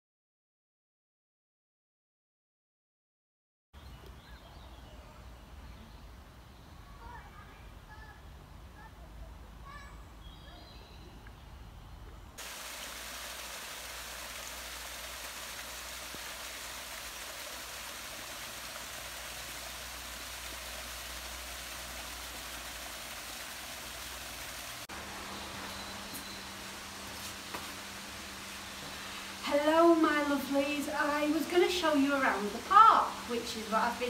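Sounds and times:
birds calling: 0:09.7 - 0:29.4
waterfall splashing into pool: 0:12.4 - 0:34.0.

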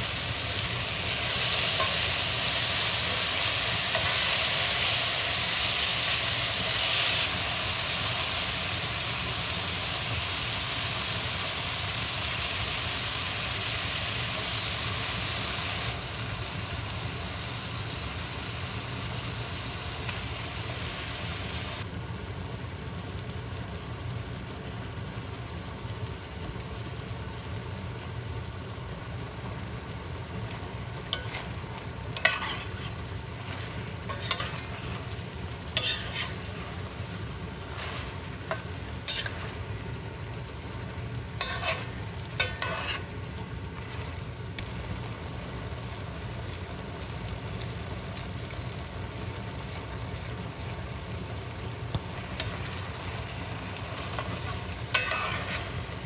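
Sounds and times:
food frying in a pot: 0:00.0 - 0:56.0
utensil scraping a pot: 0:31.2 - 0:31.5, 0:32.2 - 0:35.0, 0:35.8 - 0:36.7, 0:37.7 - 0:39.4, 0:41.4 - 0:43.1, 0:54.1 - 0:55.8.

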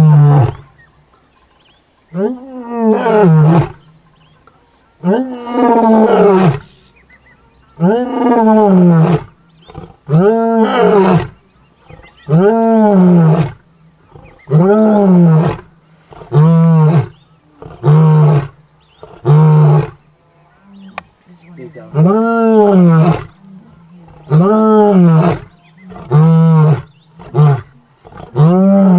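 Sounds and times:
lion roaring: 0:05.0 - 0:06.7, 0:07.8 - 0:21.0, 0:21.9 - 0:28.9.

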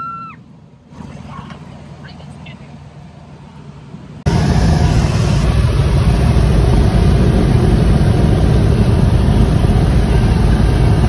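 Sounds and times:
airplane engine and propeller drone: 0:00.3 - 0:11.0
wind rush: 0:04.3 - 0:11.0.

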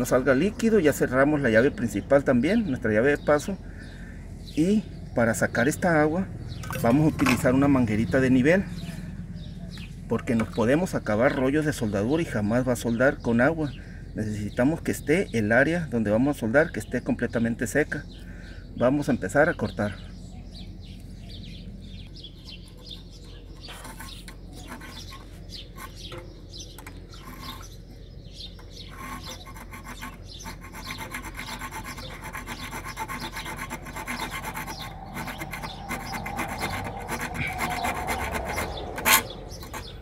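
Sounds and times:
hacksaw sawing through metal pipe: 0:22.8 - 0:27.8, 0:28.6 - 0:40.0.

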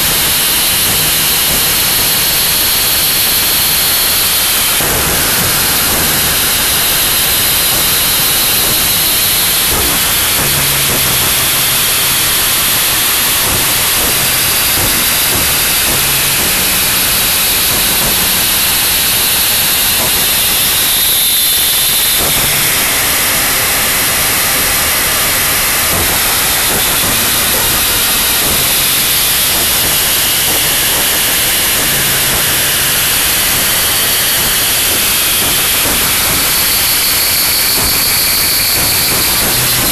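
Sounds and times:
dense wall of static noise: 0:00.0 - 0:39.9.

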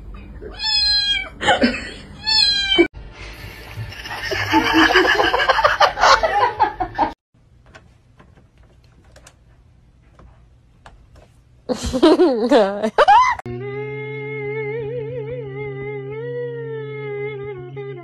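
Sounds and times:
cat meowing: 0:00.4 - 0:01.4, 0:02.2 - 0:02.9
laughter: 0:01.4 - 0:02.0, 0:04.0 - 0:07.2, 0:11.7 - 0:13.4.

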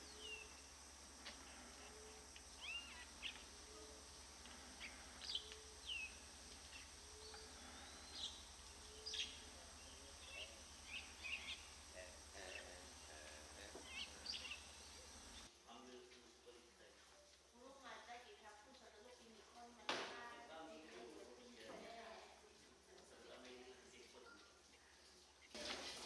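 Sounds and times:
birds chirping and whistling: 0:00.0 - 0:00.7, 0:01.8 - 0:15.5
faint low hum: 0:00.0 - 0:26.0.

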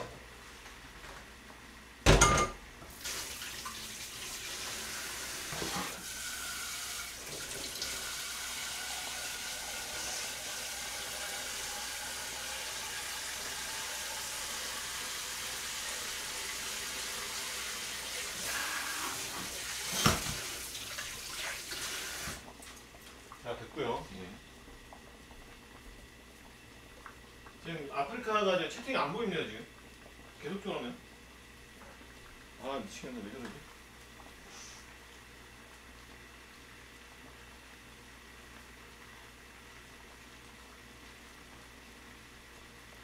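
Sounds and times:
pot clanking in sink: 0:02.1 - 0:02.6
tap water running into sink: 0:02.9 - 0:23.5.

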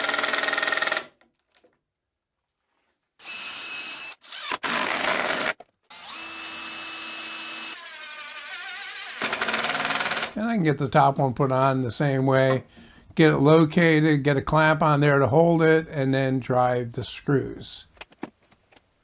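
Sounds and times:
cordless drill whine: 0:03.2 - 0:10.0
impact driver rattling: 0:09.0 - 0:10.4.

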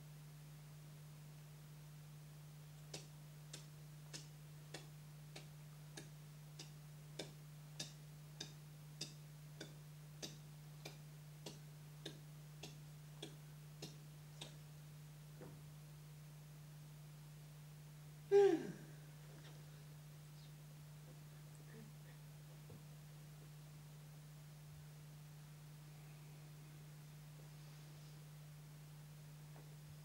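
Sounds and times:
low steady hum: 0:00.0 - 0:30.0
clock-like ticking: 0:03.0 - 0:14.6.

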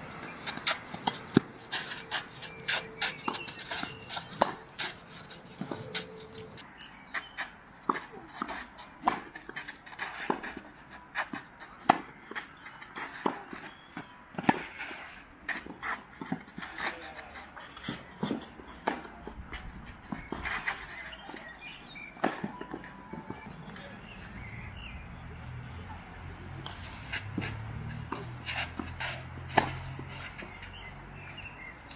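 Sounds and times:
tennis ball bouncing: 0:00.5 - 0:06.2, 0:07.8 - 0:14.8, 0:22.2 - 0:23.4, 0:26.6 - 0:31.9
racket striking tennis ball: 0:07.8 - 0:14.8, 0:17.8 - 0:21.1, 0:22.2 - 0:23.2, 0:26.6 - 0:30.8.

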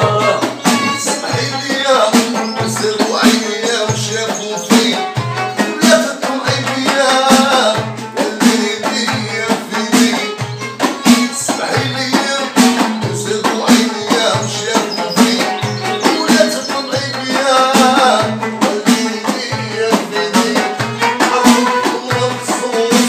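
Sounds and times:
violin melody: 0:00.0 - 0:22.9
frame drums beating: 0:00.0 - 0:23.0
oud melody: 0:00.0 - 0:23.0.

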